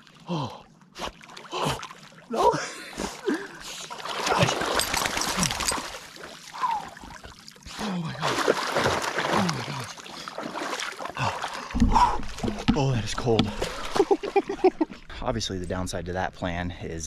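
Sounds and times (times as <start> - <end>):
person gasping groans: 0.2 - 0.7, 7.8 - 8.4, 11.2 - 12.3
water splashing around legs: 3.8 - 15.0.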